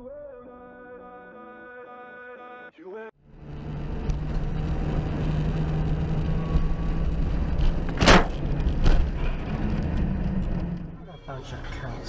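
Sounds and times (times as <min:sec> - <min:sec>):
car engine and tyres on wet road: 0:03.4 - 0:12.0.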